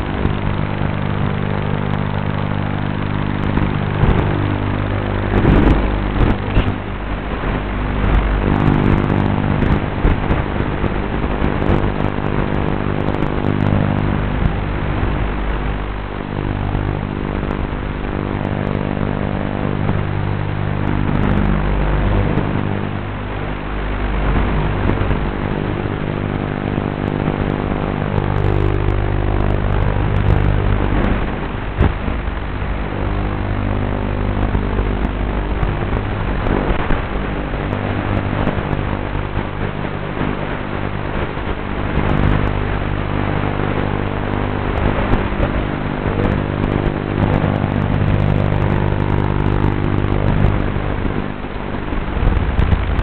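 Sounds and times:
quadcopter motors buzzing: 0.0 - 39.0.

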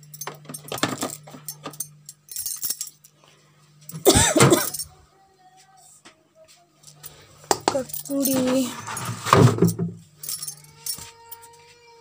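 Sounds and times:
refrigerator hum: 0.0 - 5.4, 6.6 - 12.0
dishes clicking and knocking: 7.5 - 8.4.

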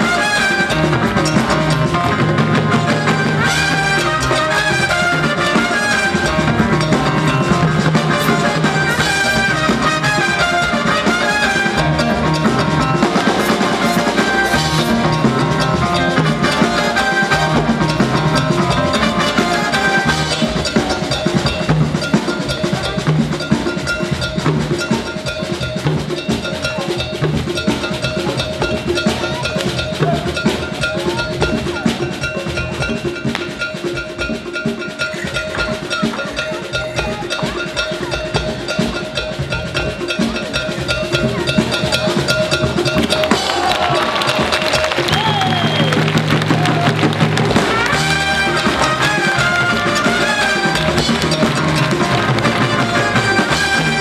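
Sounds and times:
drum kit and hand drums: 0.0 - 54.0
live latin band music: 0.0 - 54.0.

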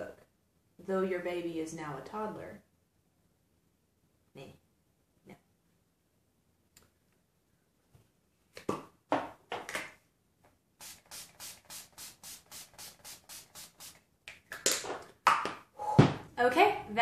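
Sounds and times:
spray bottle spritzes: 10.8 - 14.0.

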